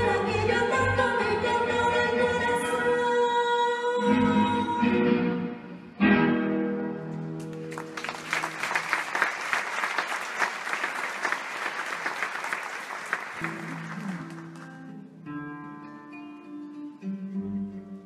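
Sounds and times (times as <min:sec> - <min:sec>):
acoustic guitars playing: 0:04.0 - 0:07.9, 0:13.4 - 0:18.0
audience applauding: 0:07.4 - 0:15.0.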